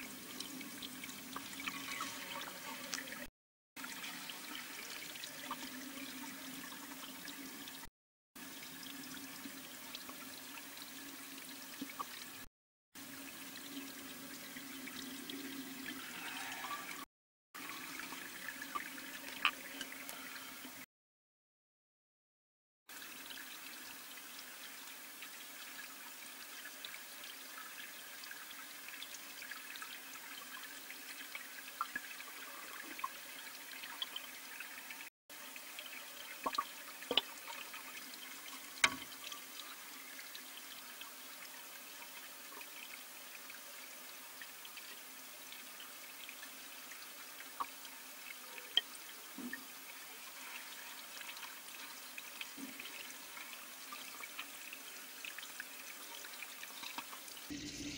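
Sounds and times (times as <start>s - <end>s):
underwater clicks and ticks: 18.7s - 19.9s, 36.4s - 37.3s, 38.8s - 39.1s.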